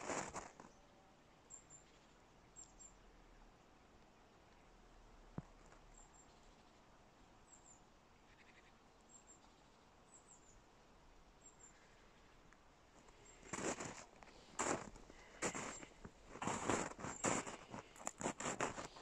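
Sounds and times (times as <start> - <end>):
small bird high call: 7.5 - 10.6.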